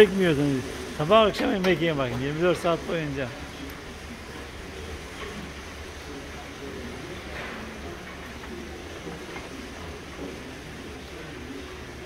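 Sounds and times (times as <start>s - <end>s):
barn machinery hum: 0.0s - 12.0s
cows feeding: 0.0s - 12.0s.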